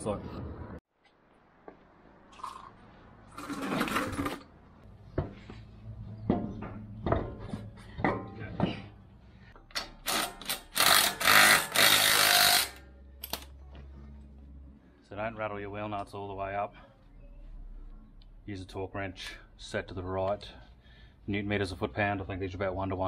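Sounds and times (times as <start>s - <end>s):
impact wrench rattling: 9.6s - 13.4s.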